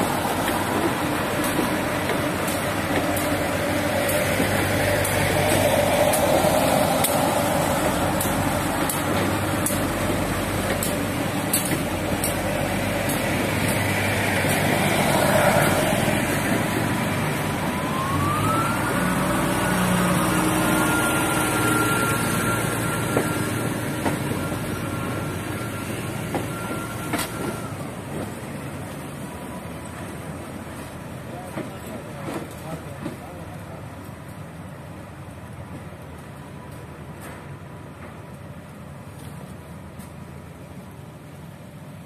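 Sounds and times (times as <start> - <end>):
train rumbling past: 0.0 - 42.0
wheels clicking over rail joints: 0.1 - 17.0.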